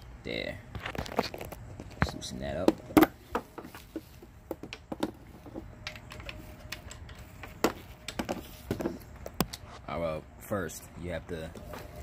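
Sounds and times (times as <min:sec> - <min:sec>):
hand tools clicking and tapping: 0:01.8 - 0:09.6.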